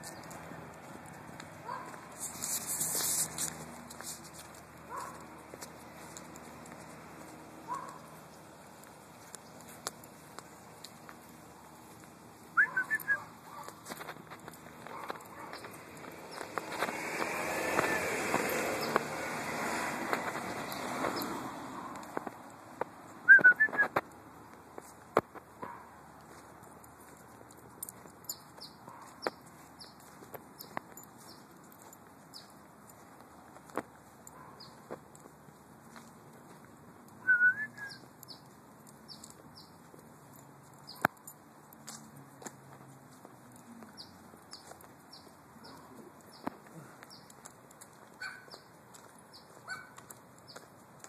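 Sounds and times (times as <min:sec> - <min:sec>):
small birds chirping: 0:00.0 - 0:19.3, 0:20.2 - 0:22.4, 0:25.6 - 0:36.6, 0:37.7 - 0:41.3, 0:43.5 - 0:51.0
car passing: 0:00.0 - 0:24.7
light footsteps: 0:00.0 - 0:51.0
short wavering whistle: 0:37.3 - 0:38.0.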